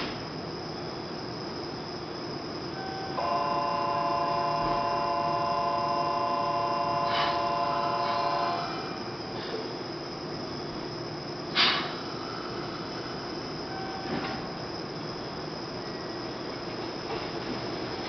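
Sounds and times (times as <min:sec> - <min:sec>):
electric train hum: 0:00.0 - 0:18.0
electronic multi-tone ring: 0:02.8 - 0:08.7.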